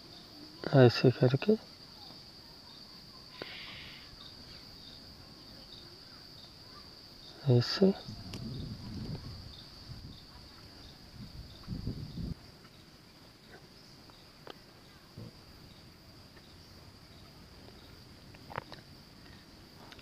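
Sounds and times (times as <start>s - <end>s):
faint clicks: 8.3s - 9.2s.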